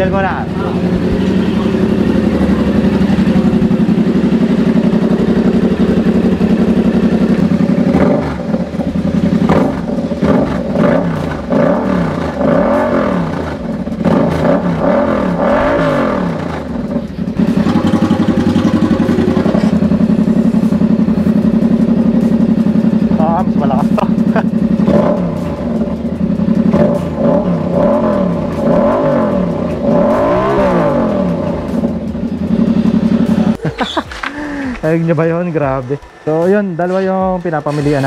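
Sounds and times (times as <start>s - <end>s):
motorcycle engine idling and revving: 0.0s - 38.0s.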